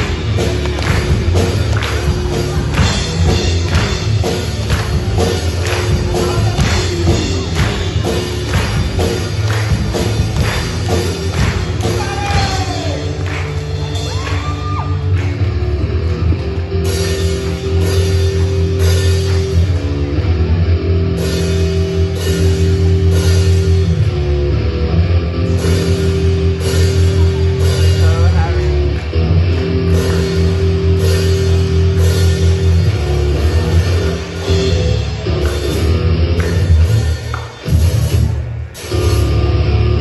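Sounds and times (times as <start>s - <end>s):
electric guitar rock music: 0.0s - 40.0s
audience whooping: 11.8s - 15.4s.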